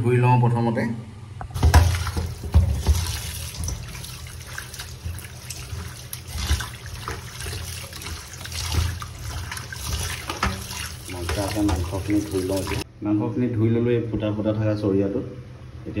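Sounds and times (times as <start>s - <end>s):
knocks and splashes of meat: 1.5s - 12.8s
tap water running: 1.5s - 12.9s.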